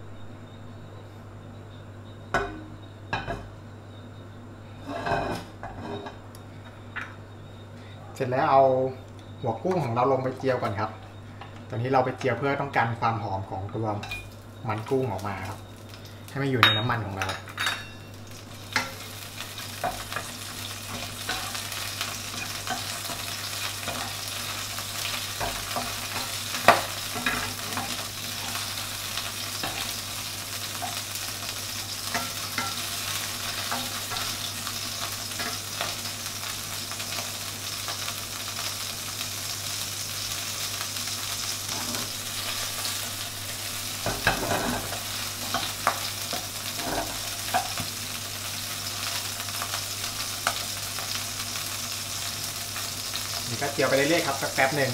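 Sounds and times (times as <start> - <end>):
frying in hot oil: 4.7 - 54.9
spatula scraping wok: 4.8 - 6.2, 18.7 - 36.0, 41.7 - 47.9.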